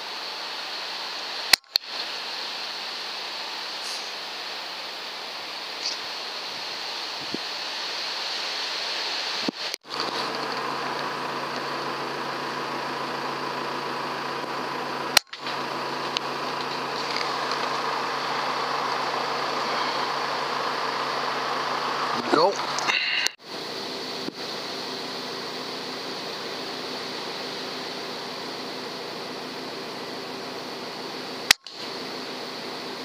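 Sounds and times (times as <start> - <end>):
microphone hiss: 0.0 - 10.6, 23.4 - 33.0
faint electronic whine: 0.0 - 33.0
sharp click: 1.5 - 1.9, 15.2 - 15.6, 31.5 - 31.8.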